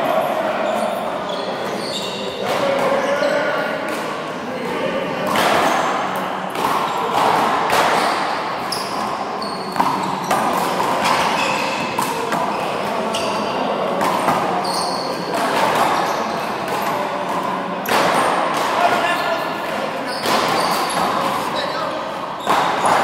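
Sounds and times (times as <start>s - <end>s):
sneakers squeaking on floor: 0.6s - 3.6s, 5.3s - 6.1s, 8.0s - 17.0s, 19.1s - 23.0s
handball slapping off walls: 5.3s - 12.5s, 15.2s - 19.0s, 19.6s - 21.6s, 22.4s - 23.0s.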